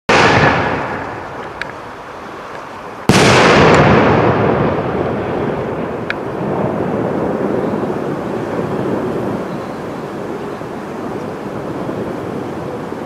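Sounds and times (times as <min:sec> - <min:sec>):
loud firework bang: 0:00.1 - 0:01.4, 0:03.1 - 0:07.2
fireworks rumble: 0:00.1 - 0:13.0
small firework pops: 0:02.5 - 0:04.0.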